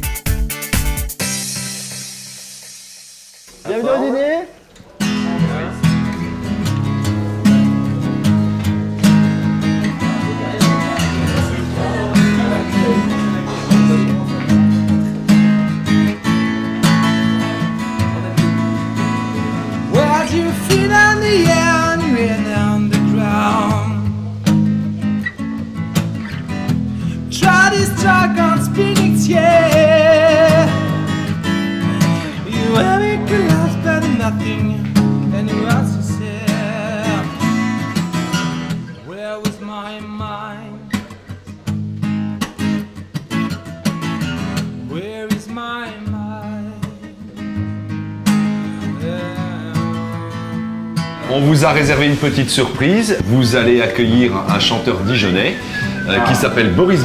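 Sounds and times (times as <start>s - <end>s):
strummed acoustic guitar: 0.0s - 4.2s, 4.8s - 57.0s
person singing: 9.9s - 15.0s, 17.3s - 24.3s, 27.0s - 37.8s, 48.6s - 50.6s.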